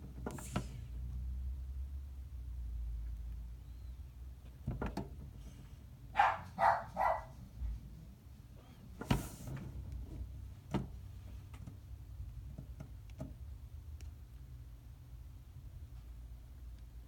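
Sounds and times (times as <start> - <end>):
dog barking: 6.1 - 7.4.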